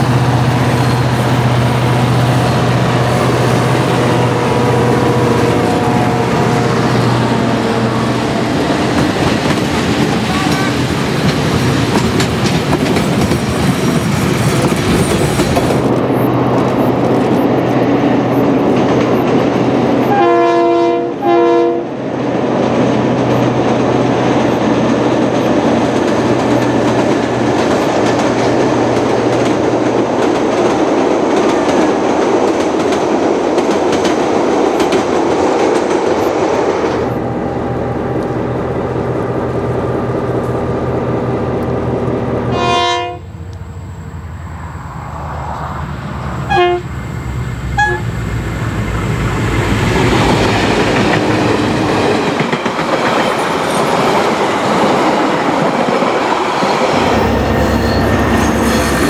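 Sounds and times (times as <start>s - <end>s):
diesel locomotive engine rumble: 0.0s - 59.0s
train wheels clattering: 2.2s - 17.7s, 22.6s - 37.0s, 48.8s - 59.0s
locomotive horn blasts: 4.0s - 8.8s, 10.1s - 10.9s, 20.0s - 21.9s, 42.5s - 43.3s, 46.5s - 46.9s, 47.8s - 48.1s.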